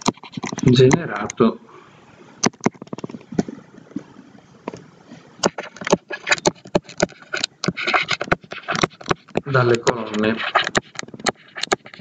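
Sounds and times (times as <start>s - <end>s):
stylus tapping on tablet screen: 5.4s - 12.0s.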